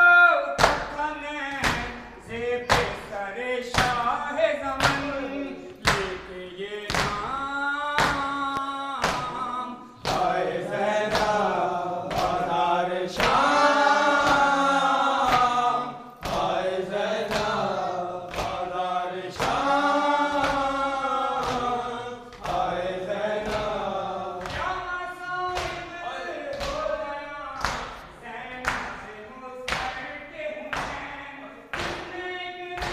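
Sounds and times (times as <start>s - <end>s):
men chanting in unison: 0.0s - 32.9s
hands slapping chests: 4.8s - 5.1s, 5.7s - 6.2s, 6.9s - 7.4s, 13.2s - 24.8s, 25.5s - 25.9s.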